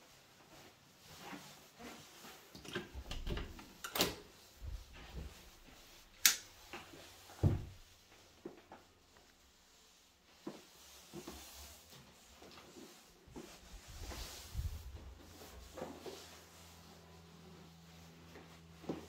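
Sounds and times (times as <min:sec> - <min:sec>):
cupboard door thump: 0:07.4 - 0:07.8
cupboard door brushing rush: 0:13.2 - 0:16.8.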